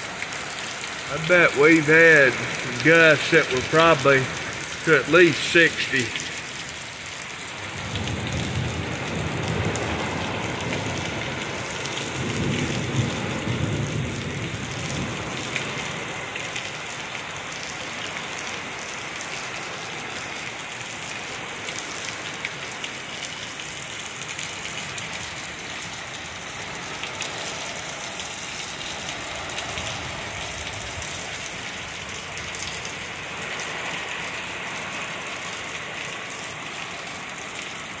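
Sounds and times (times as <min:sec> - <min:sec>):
torrential rain pouring: 0:00.0 - 0:38.0
low rumbling thunder: 0:12.0 - 0:15.3.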